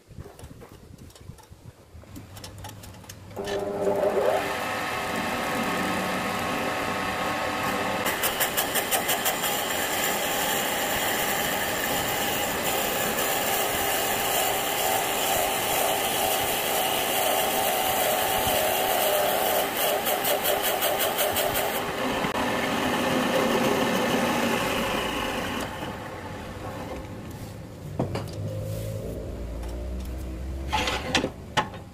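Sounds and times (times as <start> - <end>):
wood lathe motor running: 3.4 - 26.3.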